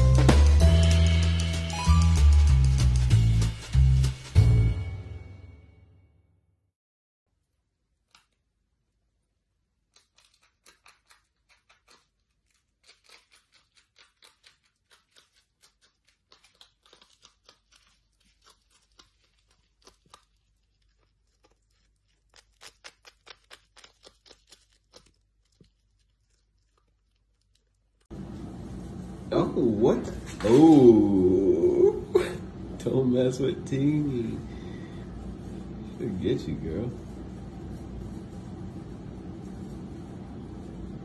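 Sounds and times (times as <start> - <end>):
marmot chewing crunchy food: 9.8 - 28.1.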